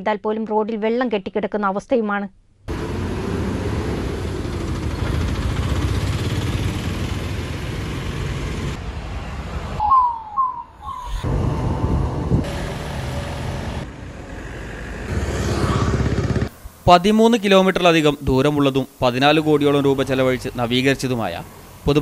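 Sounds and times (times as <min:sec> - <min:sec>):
motorcycles passing: 0:02.7 - 0:10.6, 0:11.2 - 0:16.6
traffic rumble: 0:02.7 - 0:16.9
short falling whistled calls: 0:09.8 - 0:11.3.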